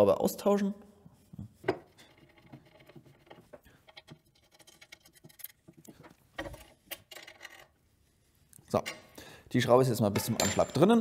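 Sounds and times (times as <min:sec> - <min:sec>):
screw clicking and scratching: 0:02.0 - 0:05.9.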